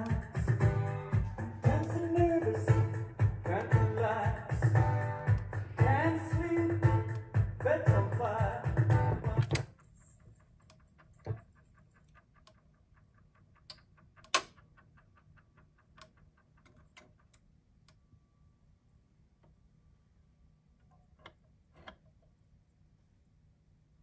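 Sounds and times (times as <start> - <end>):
rock record playing: 0.0 - 9.8
tonearm mechanism ticking: 0.0 - 18.1
sharp mechanical clicks: 9.3 - 18.0.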